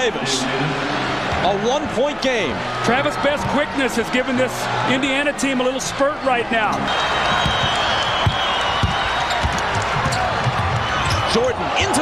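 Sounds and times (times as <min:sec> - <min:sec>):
arena crowd noise: 0:00.0 - 0:12.0
basketball dribbled on hardwood: 0:07.4 - 0:10.9.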